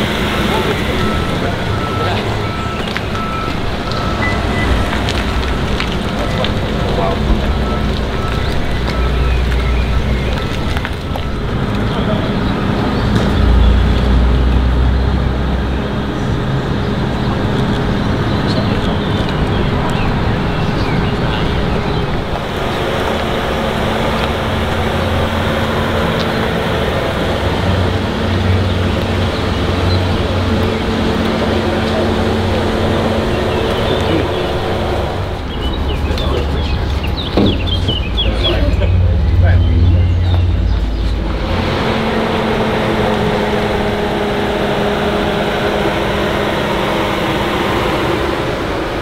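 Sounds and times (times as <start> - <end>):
engine droning hum: 0.0 - 49.0.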